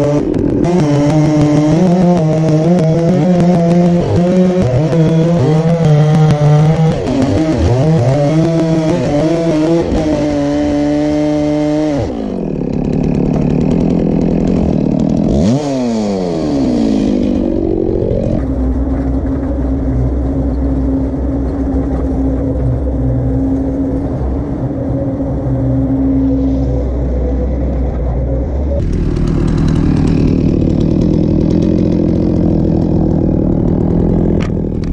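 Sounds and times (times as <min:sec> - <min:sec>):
chainsaw cutting log: 0:00.0 - 0:19.2, 0:28.8 - 0:34.9.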